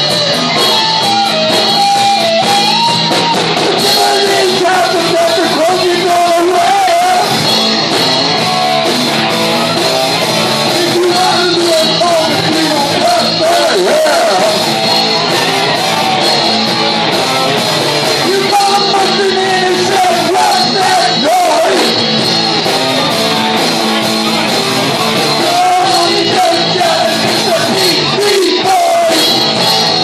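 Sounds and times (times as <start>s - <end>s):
rock band playing: 0.0s - 30.0s
man singing: 3.8s - 7.4s, 10.6s - 14.6s, 18.2s - 22.0s, 25.3s - 30.0s.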